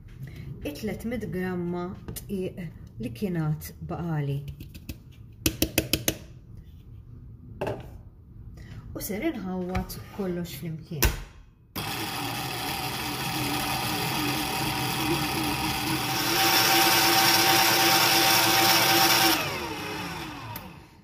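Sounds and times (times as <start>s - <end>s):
stand mixer motor running: 11.8s - 21.0s.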